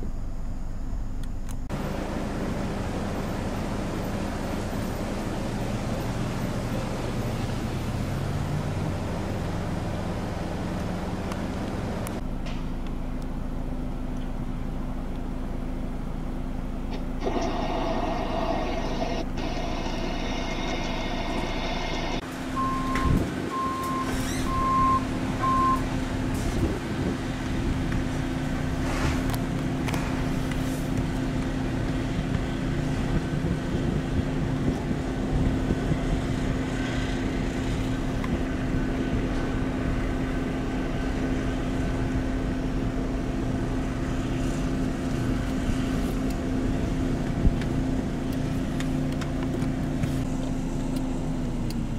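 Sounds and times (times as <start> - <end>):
vehicle engine humming: 0.0 - 51.9
short electronic beeps: 21.7 - 25.8.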